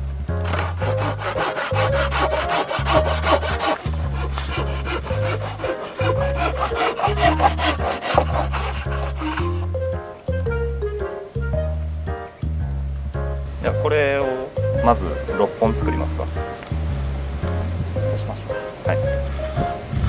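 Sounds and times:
pull saw cutting wood: 0:00.4 - 0:09.7.

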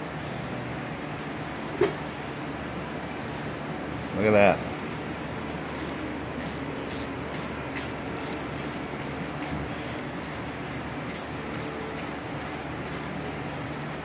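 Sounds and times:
ratchet wrench clicking: 0:04.6 - 0:04.8, 0:05.6 - 0:14.0.

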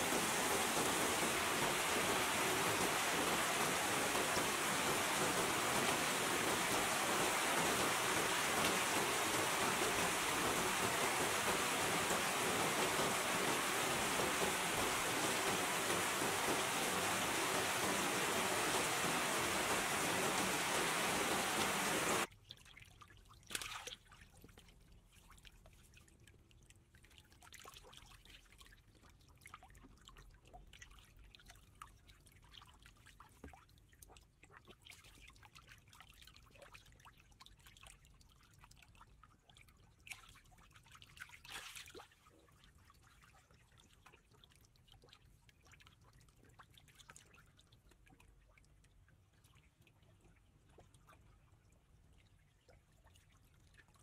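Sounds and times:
heavy rain hissing: 0:00.0 - 0:22.3
water dripping and trickling: 0:00.0 - 0:24.2
water splashes: 0:00.0 - 0:24.2.

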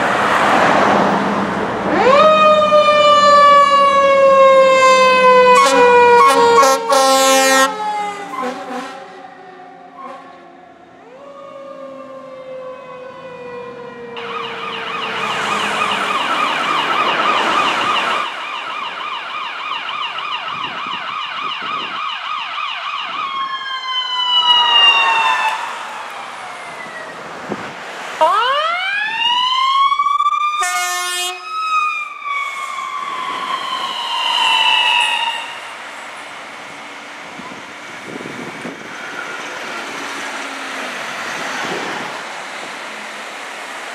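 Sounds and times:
siren yelp: 0:01.8 - 0:27.5, 0:28.2 - 0:36.2
siren wailing: 0:01.8 - 0:36.4
horn blast: 0:05.5 - 0:09.2, 0:30.6 - 0:31.5.

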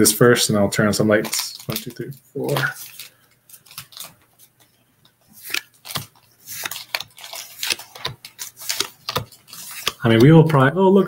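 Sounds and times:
trading cards clicking and scraping: 0:01.2 - 0:10.4.

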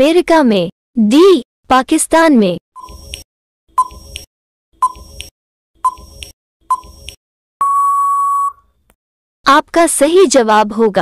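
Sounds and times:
short timer beeps: 0:03.8 - 0:08.6
long steady beep: 0:07.6 - 0:08.7.

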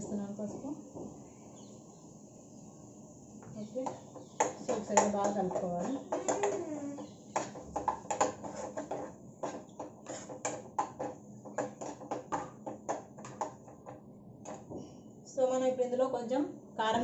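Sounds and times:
spatula scraping frying pan: 0:04.2 - 0:12.4.

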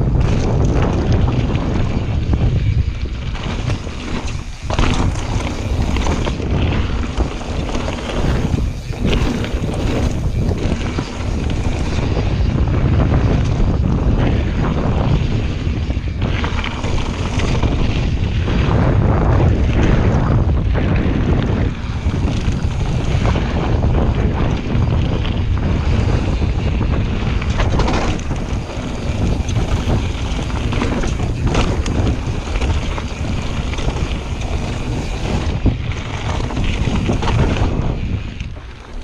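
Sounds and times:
bike knocks and rattles: 0:00.0 - 0:39.0
wind on microphone: 0:00.0 - 0:39.0
tyres on gravel: 0:03.0 - 0:12.3, 0:27.3 - 0:39.0.

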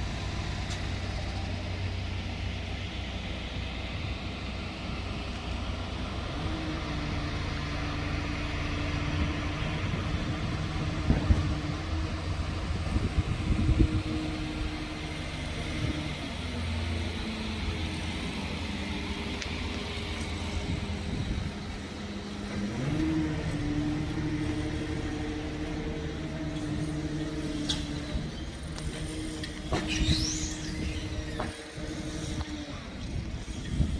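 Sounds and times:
electric train rumbling: 0:00.0 - 0:33.9
train motor hum: 0:00.0 - 0:33.9
train clunks: 0:27.6 - 0:31.7.

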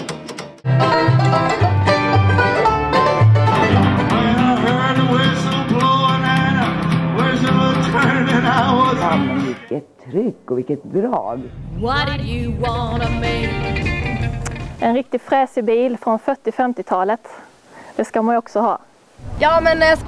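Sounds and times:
mandolin: 0:00.0 - 0:09.7, 0:11.5 - 0:15.4
guitar: 0:00.0 - 0:09.8, 0:11.4 - 0:14.9
plucked upright bass: 0:00.6 - 0:09.5, 0:11.4 - 0:14.8
man singing: 0:03.6 - 0:09.7.

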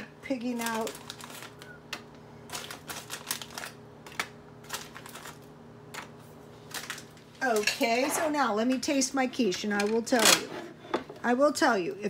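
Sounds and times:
package rustling: 0:00.5 - 0:07.4.

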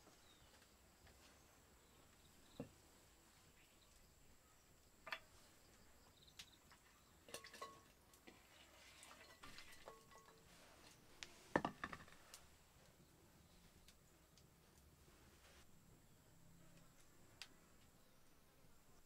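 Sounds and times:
earthenware knocks and clinks: 0:09.2 - 0:10.5.

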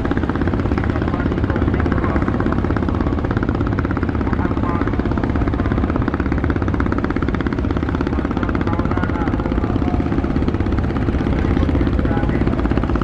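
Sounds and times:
boat diesel engine throbbing: 0:00.0 - 0:13.0.

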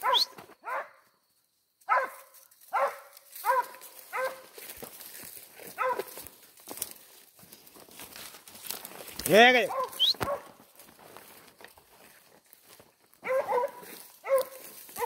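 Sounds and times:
dog barking: 0:00.0 - 0:01.0, 0:01.9 - 0:04.5, 0:05.8 - 0:06.2, 0:09.7 - 0:10.6, 0:13.2 - 0:15.0.

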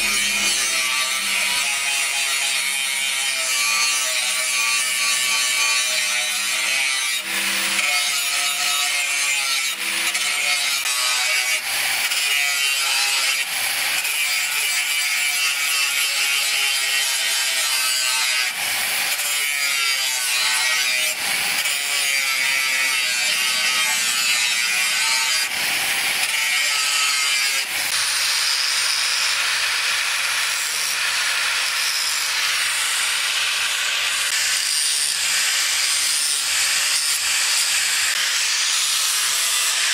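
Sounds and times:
angle grinder motor whine: 0:00.0 - 0:02.1.

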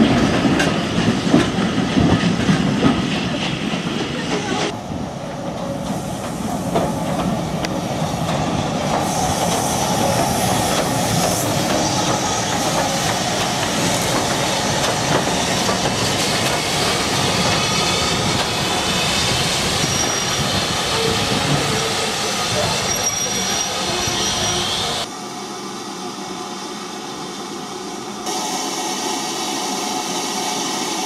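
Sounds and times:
steam train running past: 0:00.0 - 0:31.0.

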